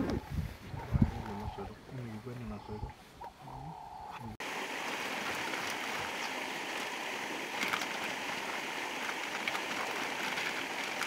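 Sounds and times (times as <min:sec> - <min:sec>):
flowing water rushing: 0:04.4 - 0:11.0.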